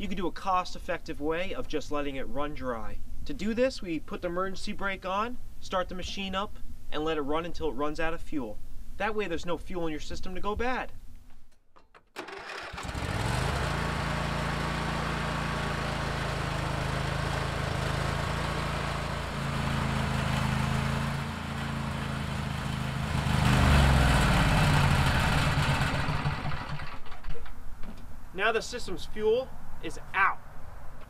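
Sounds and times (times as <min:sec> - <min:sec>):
tractor engine starting and idling: 0:11.8 - 0:27.5.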